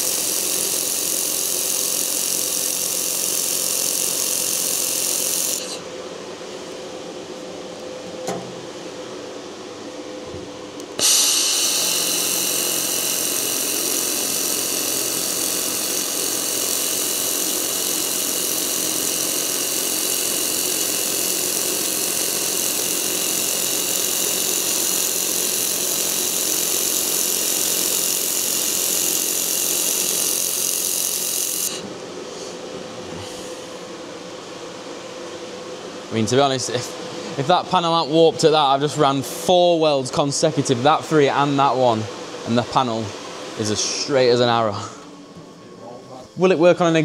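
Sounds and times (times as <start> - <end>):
laser welder hissing and whining: 0.0 - 6.0, 10.8 - 32.0.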